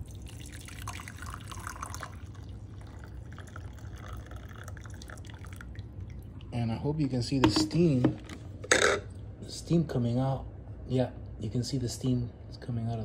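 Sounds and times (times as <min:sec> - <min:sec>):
hot water pouring into a mug: 0:00.0 - 0:06.5.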